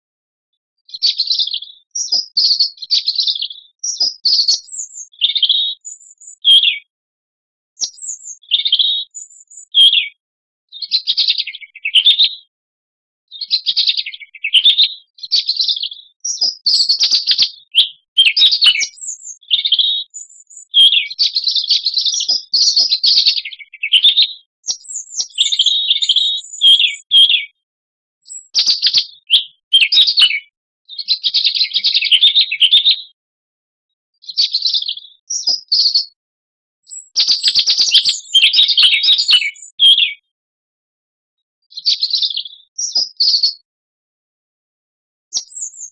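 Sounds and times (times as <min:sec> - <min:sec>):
robin singing: 0:00.8 - 0:06.9, 0:07.8 - 0:12.5, 0:13.3 - 0:27.6, 0:28.2 - 0:33.1, 0:34.2 - 0:36.2, 0:36.8 - 0:40.3, 0:41.7 - 0:43.6, 0:45.3 - 0:45.9.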